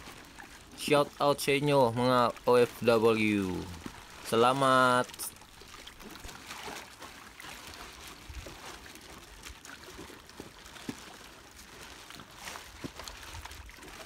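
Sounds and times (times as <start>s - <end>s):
water trickling and splashing: 0.0s - 14.0s
small splashes at water surface: 3.6s - 14.0s.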